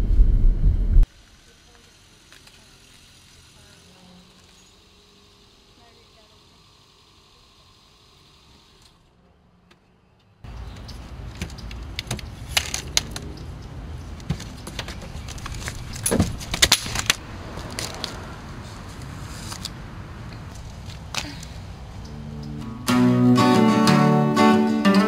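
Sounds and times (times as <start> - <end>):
low background rumble: 0.0 - 1.1
metal crutches clicking and rattling: 10.6 - 18.2.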